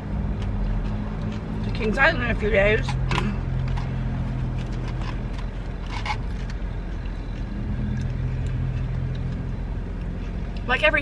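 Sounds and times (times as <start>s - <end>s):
food container crunching: 2.8s - 10.4s.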